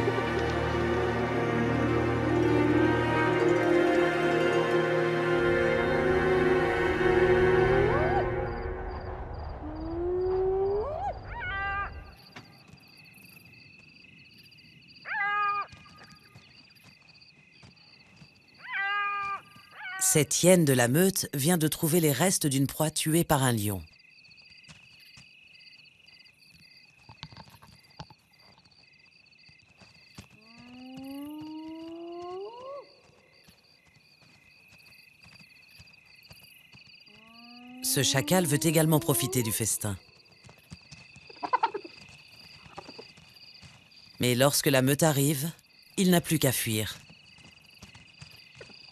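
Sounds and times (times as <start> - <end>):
night insects chirping: 0.0 - 48.9
hyena whooping: 7.6 - 8.5, 9.6 - 12.1.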